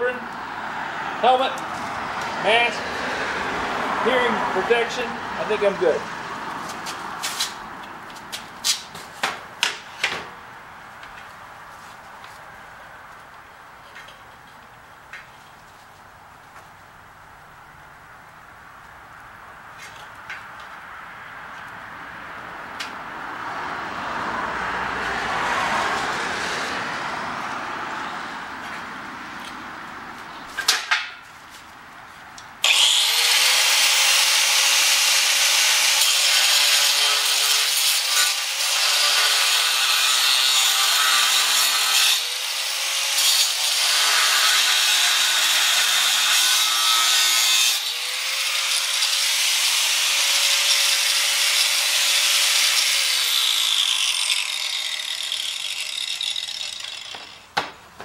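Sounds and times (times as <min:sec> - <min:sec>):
angle grinder grinding steel: 0:32.6 - 0:57.5.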